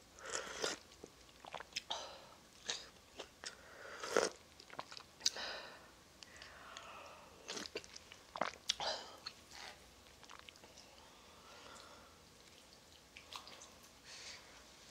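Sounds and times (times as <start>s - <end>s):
slurping noodles: 0.2s - 0.8s, 3.9s - 5.0s
person chewing: 0.2s - 1.9s, 2.6s - 5.4s, 6.2s - 11.0s.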